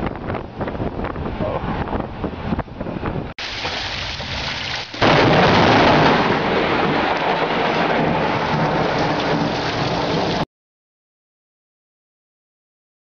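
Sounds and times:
loud thunderclap and rumble: 0.0 - 10.4
rain hiss: 3.4 - 5.2.

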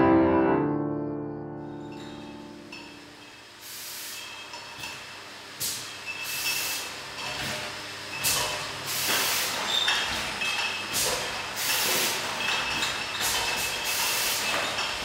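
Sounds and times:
pneumatic air hiss bursts: 3.6 - 4.9, 5.6 - 7.6, 8.2 - 10.2, 10.8 - 12.3, 13.2 - 14.8.

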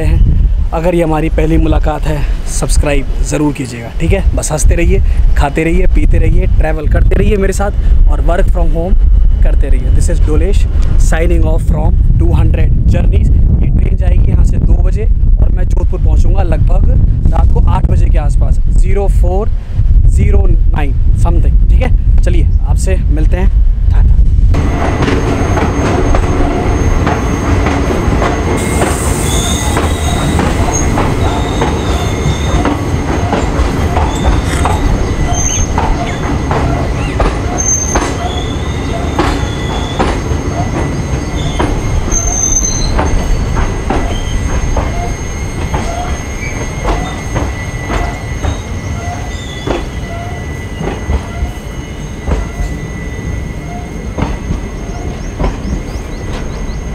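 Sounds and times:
train coaches rumbling: 0.0 - 56.9
wheels clicking and knocking on track: 24.6 - 38.4, 39.1 - 48.7, 55.2 - 56.7
high-pitched wheel squeals: 25.2 - 56.9.

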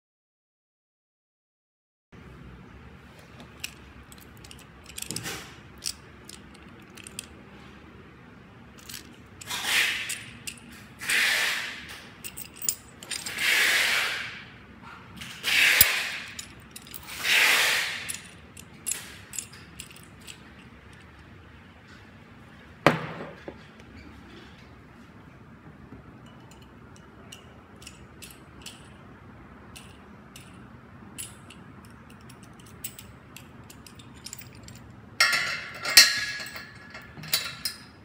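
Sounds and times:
metal parts scraping: 3.5 - 7.7, 8.8 - 14.4, 15.2 - 21.3, 26.2 - 29.0, 31.2 - 38.0.

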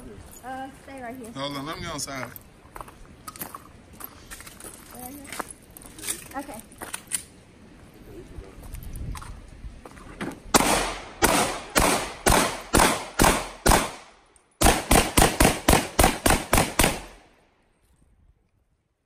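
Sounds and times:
pistol gunshots: 10.5 - 17.2.

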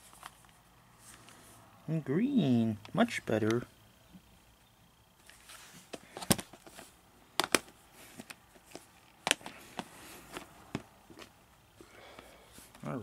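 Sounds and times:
plastic case clicks: 7.4 - 9.9.

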